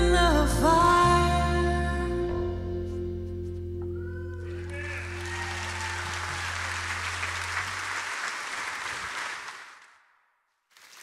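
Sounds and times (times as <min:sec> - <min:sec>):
audience applauding: 0:04.4 - 0:10.1, 0:10.8 - 0:11.0.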